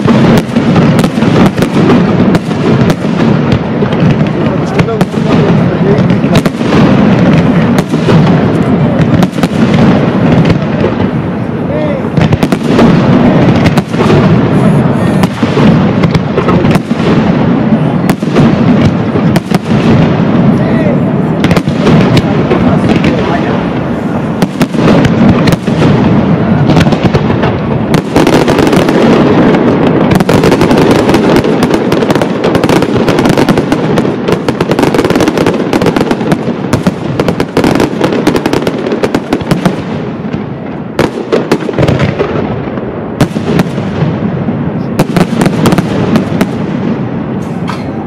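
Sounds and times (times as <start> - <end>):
fireworks bangs and crackle: 0.0 - 48.0.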